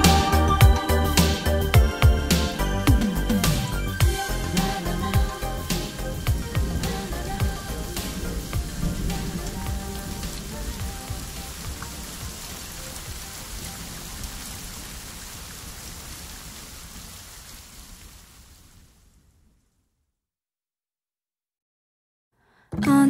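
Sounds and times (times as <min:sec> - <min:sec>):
song outro: 0:00.0 - 0:11.6
rain-like hiss with ticks: 0:04.0 - 0:19.7.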